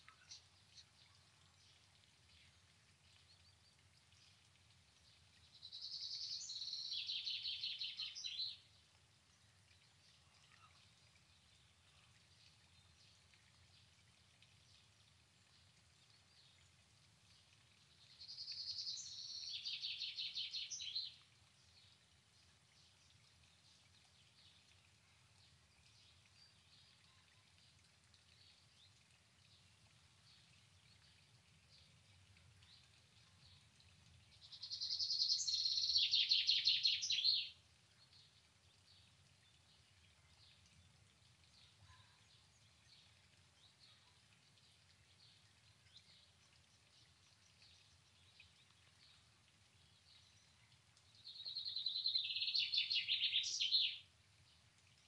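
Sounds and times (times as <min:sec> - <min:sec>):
faint low background noise: 0:00.0 - 0:55.0
songbird trilling: 0:51.5 - 0:54.0.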